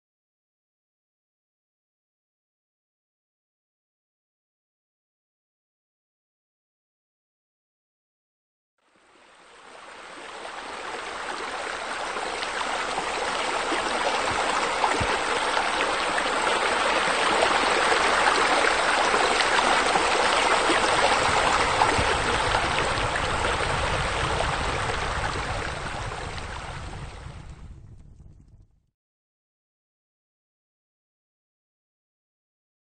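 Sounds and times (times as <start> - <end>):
waterfall spilling into pond: 9.0 - 27.2.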